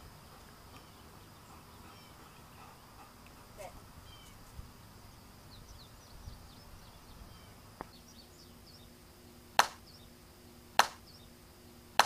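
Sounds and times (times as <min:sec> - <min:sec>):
faint bird chirps: 0:00.0 - 0:11.9
bat hitting softball: 0:09.6 - 0:09.8, 0:10.8 - 0:11.0.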